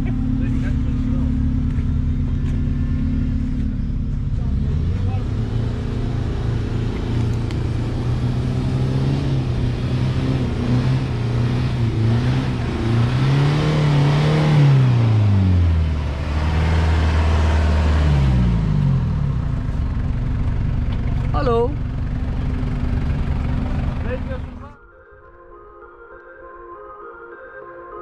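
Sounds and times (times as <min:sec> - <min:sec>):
vehicle engine revving in mud: 0:04.4 - 0:19.8.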